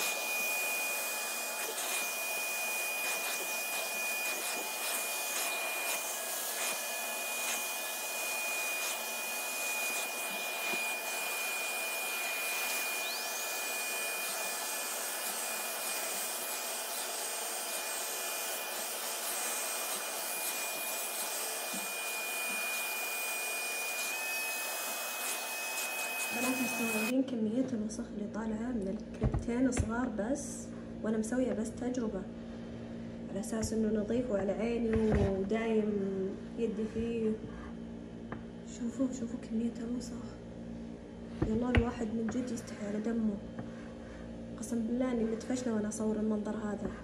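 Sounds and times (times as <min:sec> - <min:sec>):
upholstery cleaner sucking water: 0:00.0 - 0:27.1.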